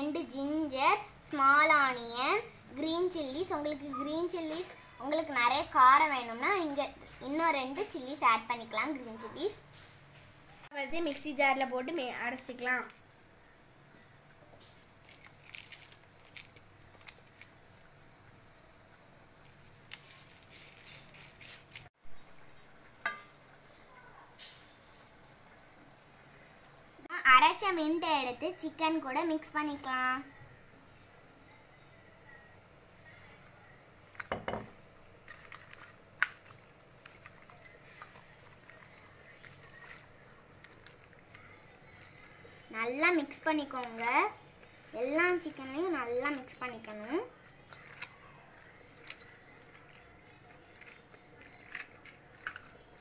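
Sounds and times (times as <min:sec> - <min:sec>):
leaves and vegetables rustling: 0:19.4 - 0:25.0, 0:34.0 - 0:53.0
chicken being mixed by hand: 0:35.3 - 0:53.0.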